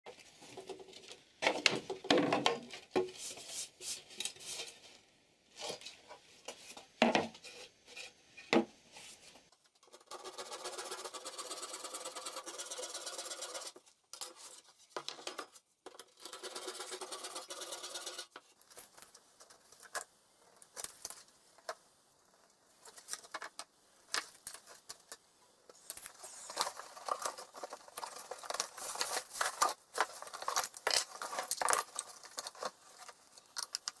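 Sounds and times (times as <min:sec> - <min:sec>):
cardboard box rustling open: 0:25.9 - 0:33.2.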